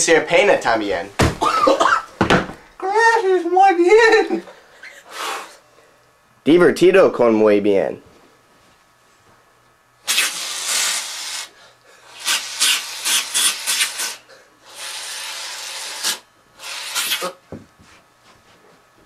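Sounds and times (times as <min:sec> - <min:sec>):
aerosol can spraying: 0:10.1 - 0:11.5, 0:12.2 - 0:17.4.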